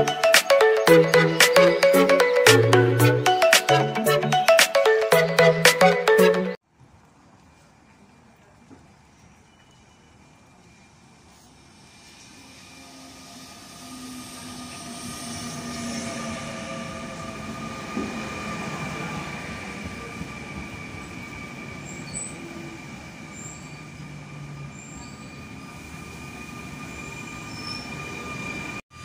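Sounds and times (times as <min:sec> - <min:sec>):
train wheels rumbling on rail: 0:08.5 - 0:29.0
high-pitched squeal: 0:09.4 - 0:29.0.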